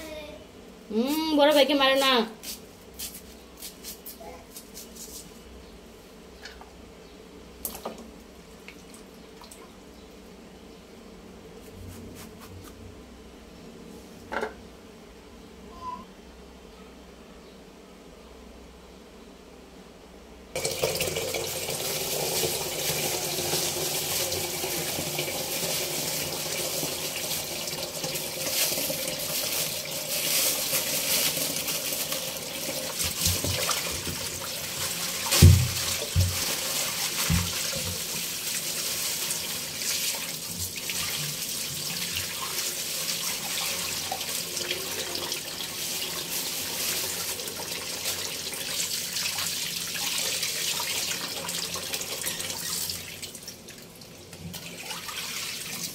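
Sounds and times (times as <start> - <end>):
tap water pouring into metal bowl: 20.6 - 55.9
knocks in sink: 35.3 - 36.4.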